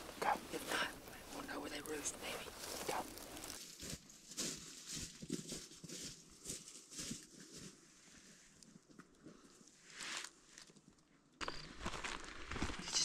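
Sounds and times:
soft rustles and scuffs: 0.0s - 8.6s.

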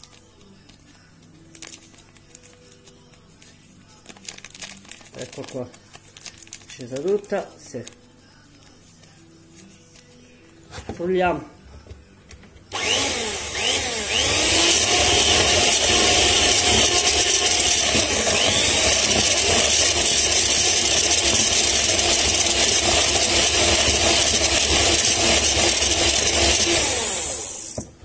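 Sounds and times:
electric mixer whisking batter: 12.7s - 27.9s.

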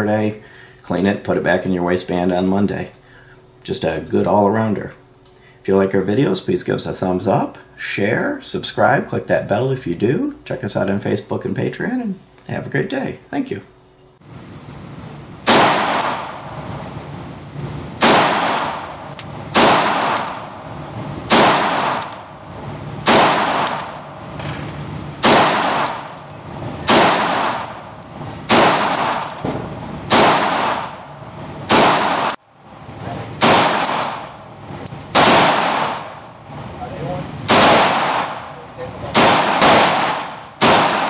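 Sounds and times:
pistol shots echoing indoors: 15.4s - 16.9s, 18.0s - 24.6s, 25.2s - 26.2s, 26.8s - 32.4s, 33.4s - 34.5s, 35.1s - 36.3s, 37.4s - 41.0s.

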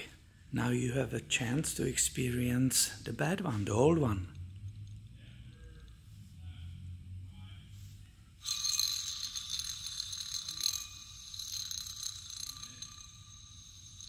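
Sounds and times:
pulley bearing grinding and whining: 8.4s - 14.0s.

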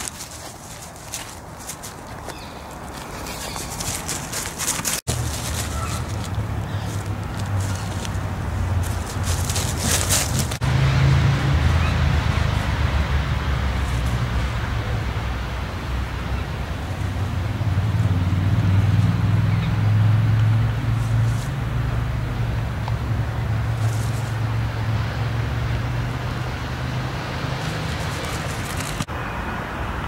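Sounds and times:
road traffic rumble: 0.0s - 30.0s
vehicle passing close by: 3.1s - 30.0s.

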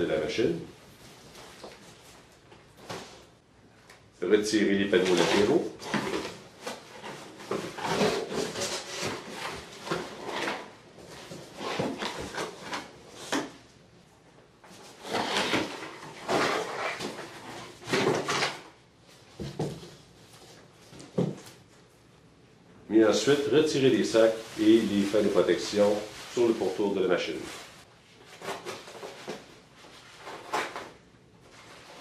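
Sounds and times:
cardboard rustling and scraping: 4.9s - 13.6s, 14.6s - 21.6s, 23.8s - 32.0s.

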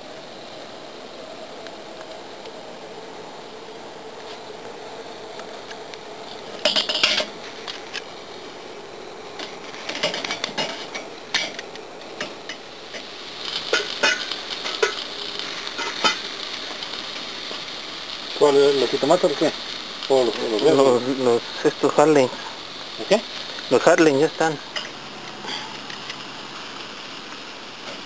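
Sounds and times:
steady hiss: 0.0s - 28.0s
metal tongs clinking on grill: 6.6s - 7.3s, 13.7s - 15.0s, 24.7s - 26.2s.

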